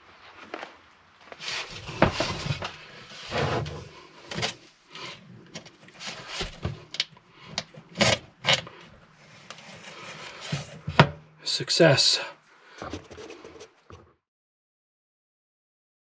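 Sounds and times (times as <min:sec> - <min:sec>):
steel scraping against wood: 0:08.0 - 0:10.9, 0:12.7 - 0:14.0.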